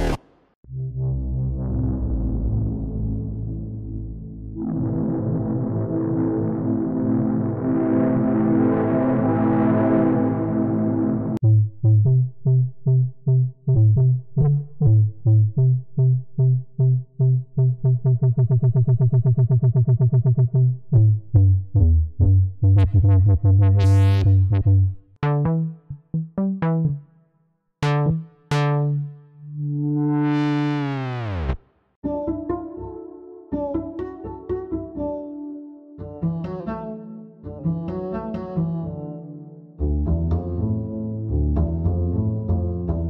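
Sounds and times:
wobbling synth bass notes: 0:00.0 - 0:08.7, 0:11.1 - 0:27.2, 0:27.8 - 0:35.2, 0:39.8 - 0:43.0
synth note sliding down in pitch: 0:27.8 - 0:31.6.

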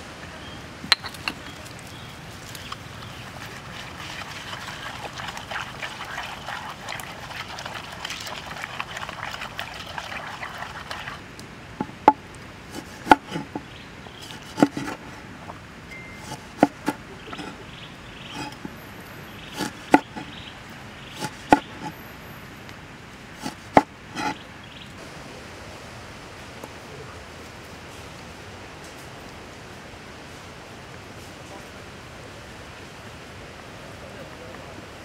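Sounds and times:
pestle grinding in wooden mortar: 0:02.4 - 0:11.2, 0:11.8 - 0:15.2, 0:16.2 - 0:17.7, 0:18.3 - 0:18.8, 0:19.5 - 0:20.4, 0:21.1 - 0:22.0, 0:23.4 - 0:24.4
cleaver chopping on wooden board: 0:12.8 - 0:13.6, 0:14.4 - 0:15.0, 0:16.2 - 0:17.5, 0:19.6 - 0:20.3, 0:21.2 - 0:21.9, 0:23.4 - 0:24.4.

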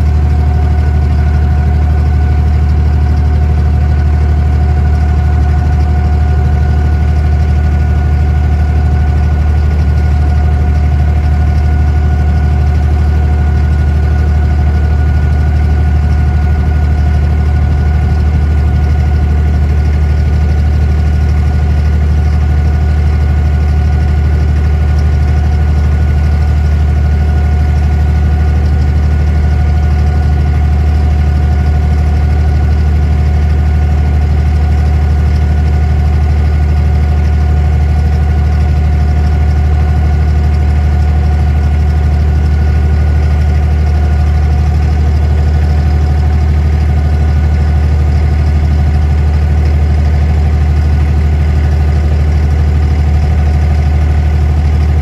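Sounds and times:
boat diesel engine drone: 0:00.0 - 0:55.0
steady engine whine: 0:00.0 - 0:55.0.

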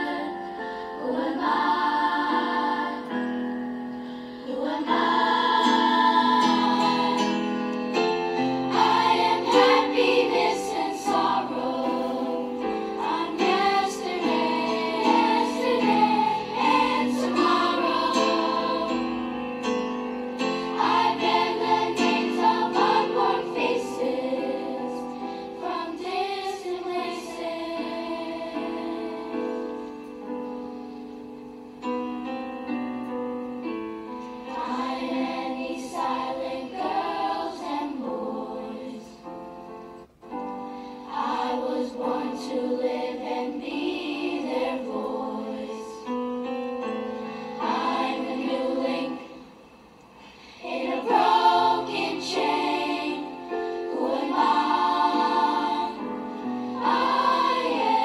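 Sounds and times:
choir singing with instruments: 0:00.0 - 0:31.5, 0:33.6 - 0:40.1, 0:40.7 - 0:58.0.

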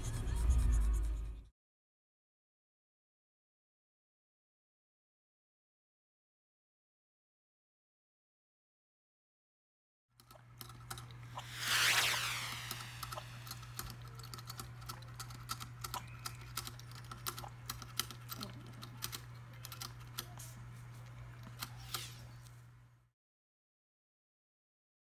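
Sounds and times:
steady low hum: 0:10.4 - 0:23.0
brief whoosh: 0:11.4 - 0:13.6.

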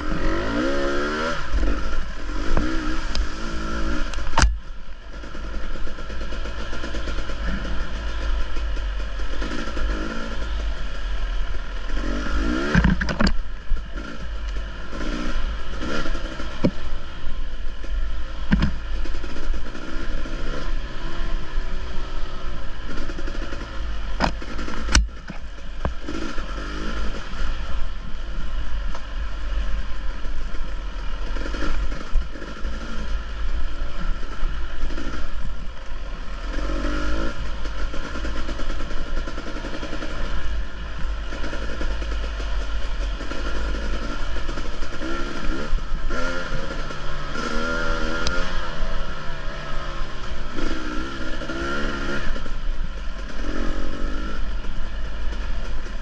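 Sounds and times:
dirt bike engine revving: 0:00.0 - 0:56.0
sharp knocks and clatter: 0:12.6 - 0:15.1, 0:18.4 - 0:19.8, 0:22.9 - 0:26.4.

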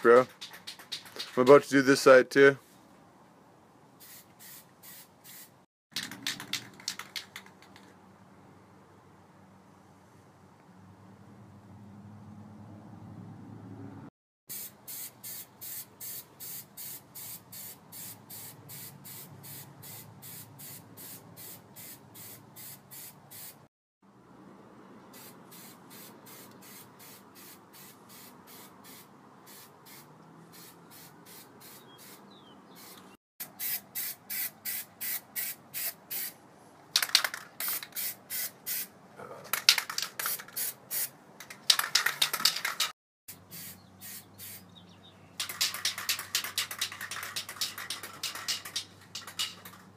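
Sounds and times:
spray bursts hissing: 0:04.0 - 0:05.6, 0:14.5 - 0:23.6, 0:25.1 - 0:36.4, 0:37.6 - 0:38.9, 0:43.5 - 0:44.6.

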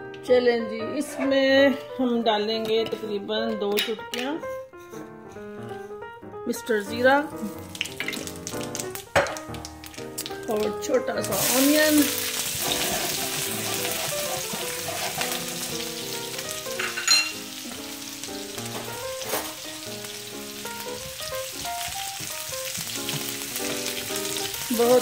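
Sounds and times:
soft background melody: 0:00.0 - 0:25.0
onion sizzling in a frying pan: 0:07.3 - 0:25.0.

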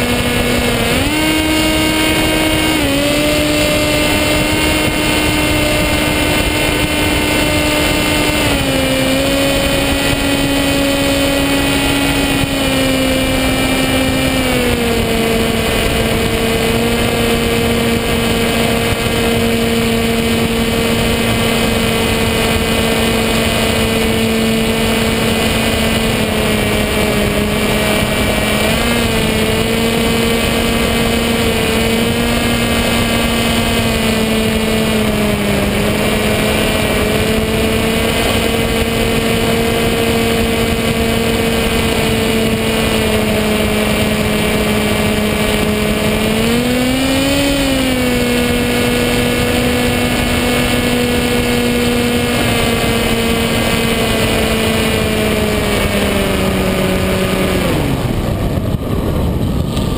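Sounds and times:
electric motor whine: 0:00.0 - 0:59.9
wind rush: 0:00.0 - 0:59.9.

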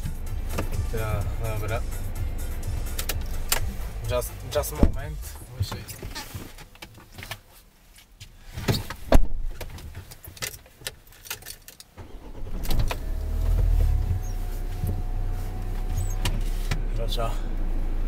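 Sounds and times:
diesel engine starting and idling: 0:00.0 - 0:05.7, 0:12.0 - 0:18.0.

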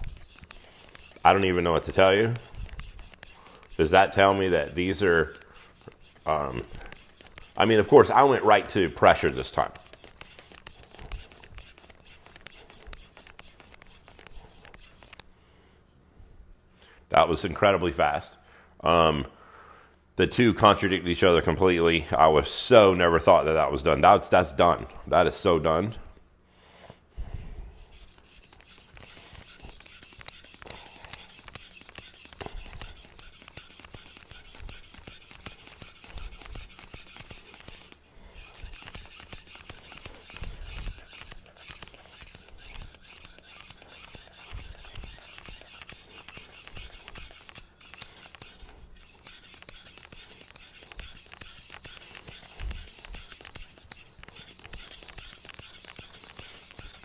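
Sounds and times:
knife scraping on whetstone: 0:00.0 - 0:15.3, 0:27.7 - 0:57.0.

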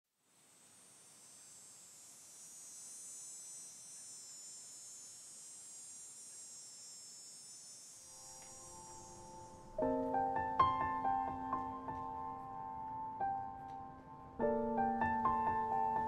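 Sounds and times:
high-pitched insect chorus: 0:01.0 - 0:09.8.

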